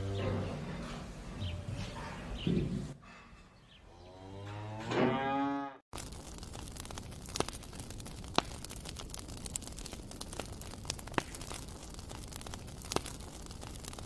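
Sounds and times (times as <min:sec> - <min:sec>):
cow mooing: 0:03.9 - 0:05.8
twig fire crackling: 0:05.9 - 0:14.0.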